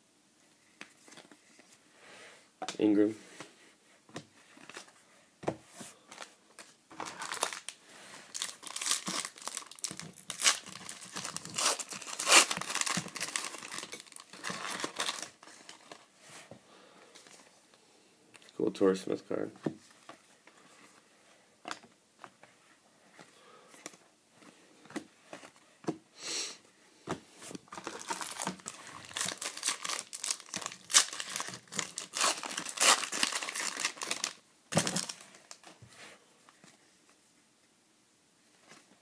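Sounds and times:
foil wrapper tearing and crinkling: 0:07.0 - 0:07.7, 0:08.3 - 0:15.4, 0:27.8 - 0:35.6.

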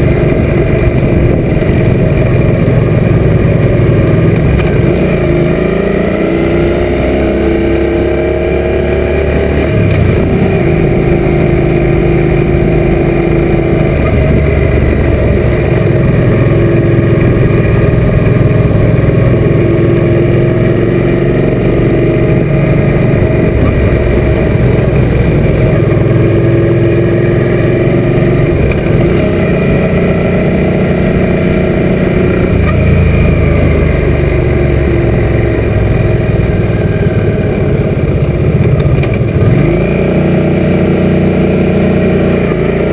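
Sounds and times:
wind rushing over microphone: 0:00.0 - 0:05.6
motorcycle engine accelerating: 0:00.0 - 0:42.9.

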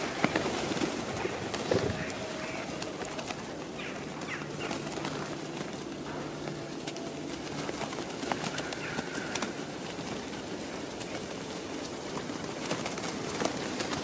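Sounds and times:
pigeon wings fluttering: 0:00.0 - 0:14.0
pigeons pecking at ground: 0:00.0 - 0:14.0.

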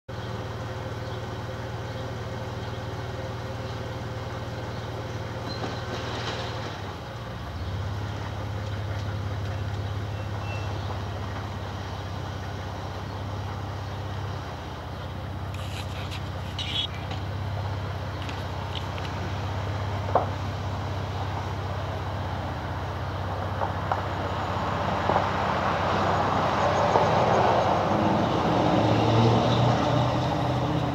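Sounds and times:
truck engine idling: 0:06.9 - 0:24.5.

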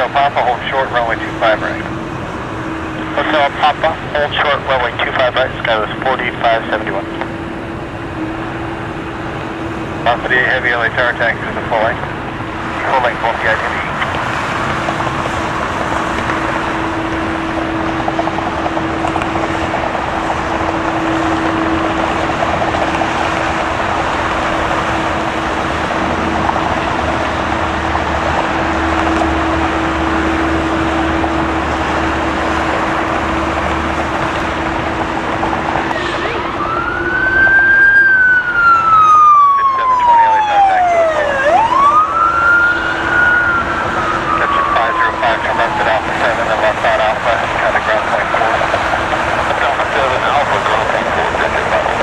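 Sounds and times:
jet engine noise: 0:00.0 - 0:52.0
siren rising in pitch: 0:14.8 - 0:52.0.

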